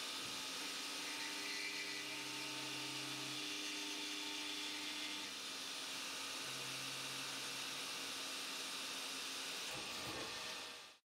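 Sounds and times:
faint motor hums: 0:00.0 - 0:11.0.

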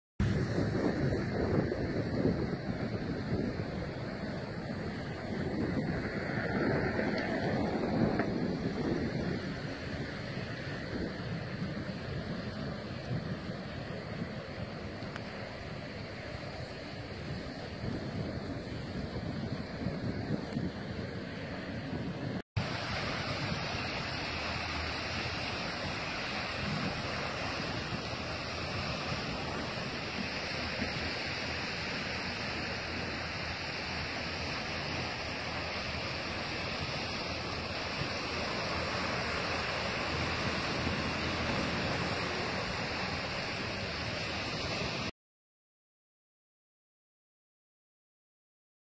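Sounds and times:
floodwater rushing: 0:00.2 - 0:45.1.

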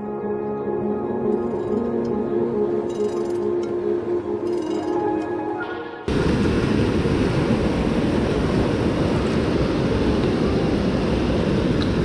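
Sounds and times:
whitewater rushing: 0:05.6 - 0:12.0.

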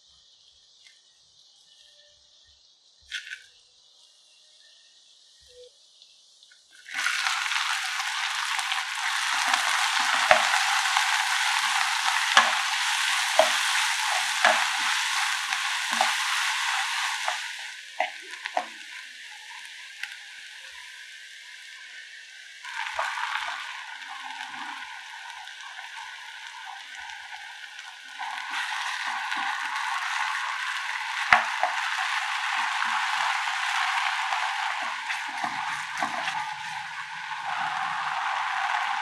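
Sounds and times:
onions sizzling in oil: 0:00.1 - 0:39.0
wooden spatula scraping pan: 0:09.0 - 0:18.7, 0:34.3 - 0:37.0.

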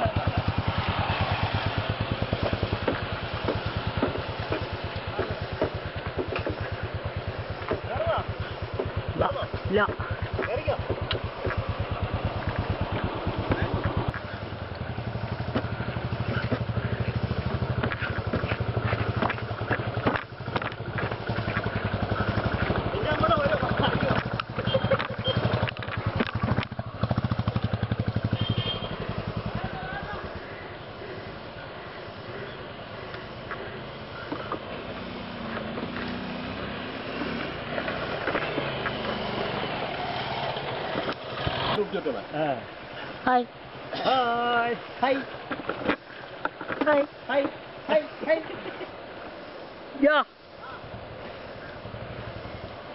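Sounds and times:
motorcycle engine running: 0:00.0 - 0:42.5, 0:50.9 - 0:52.9.

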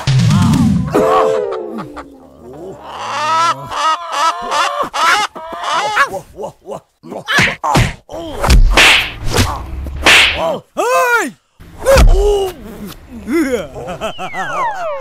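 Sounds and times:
pitched cries: 0:01.7 - 0:06.3
punch and kick impacts: 0:07.4 - 0:10.5, 0:11.9 - 0:12.3.

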